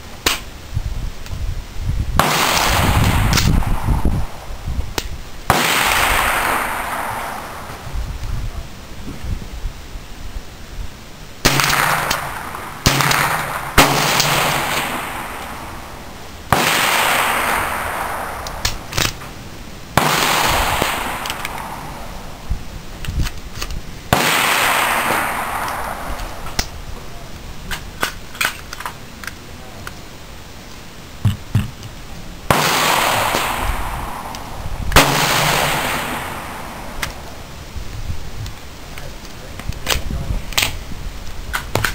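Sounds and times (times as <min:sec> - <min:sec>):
rifle shots with echo: 0:02.2 - 0:04.5, 0:05.5 - 0:07.8, 0:11.4 - 0:19.2, 0:20.0 - 0:22.3, 0:24.1 - 0:26.6, 0:32.5 - 0:37.3.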